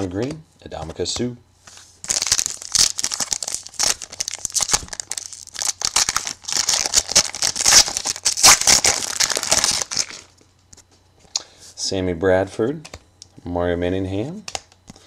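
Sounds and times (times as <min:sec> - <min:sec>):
foil wrapper crinkling: 0:02.0 - 0:10.3.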